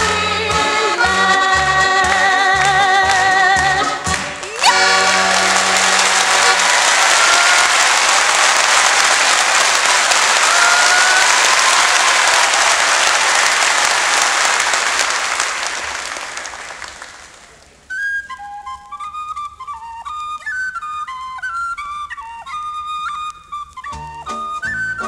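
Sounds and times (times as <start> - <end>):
flute tune: 0.0 - 7.9, 17.8 - 25.0
audience applauding: 4.0 - 17.8.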